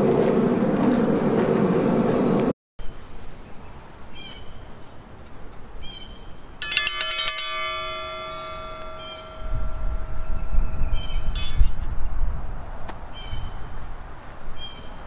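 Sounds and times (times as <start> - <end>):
bell ringing tones: 6.6 - 11.8
triangle bell struck rapidly: 6.6 - 11.8.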